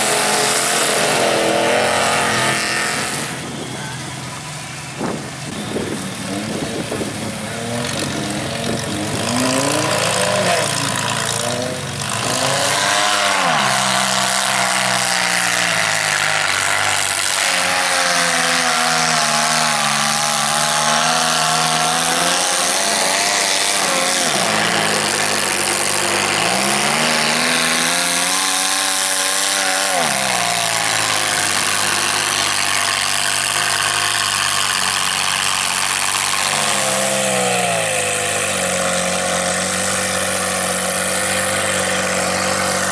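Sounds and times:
tires churning mud: 0.0s - 42.9s
truck engine revving: 0.0s - 42.9s.

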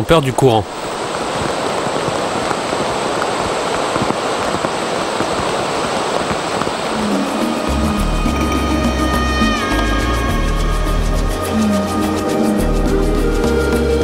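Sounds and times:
river rushing: 0.0s - 14.0s.

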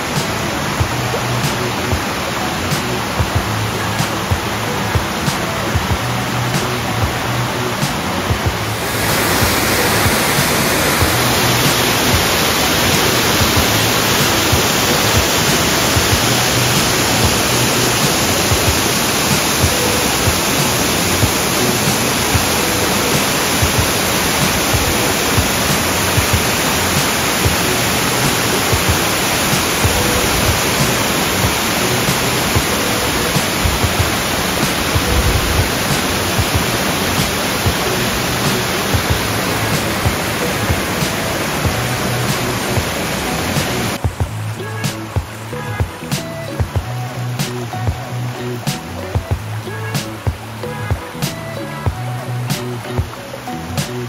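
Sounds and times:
loud rushing noise: 0.0s - 46.8s.

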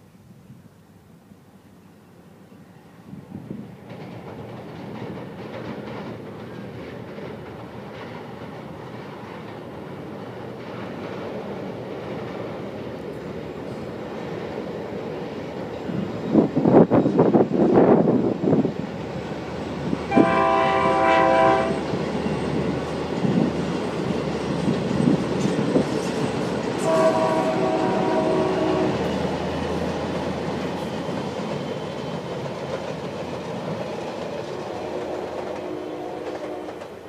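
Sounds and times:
train rumble and wheel clatter: 2.2s - 37.0s
locomotive air horn blasts: 20.1s - 21.9s, 26.8s - 29.0s, 34.6s - 36.8s.

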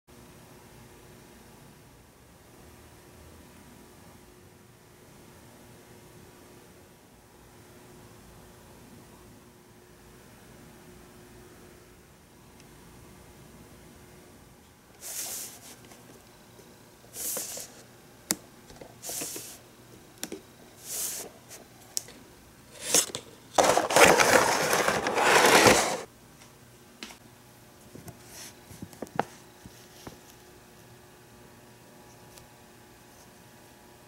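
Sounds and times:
packaging scraping and rustling: 22.7s - 26.1s.

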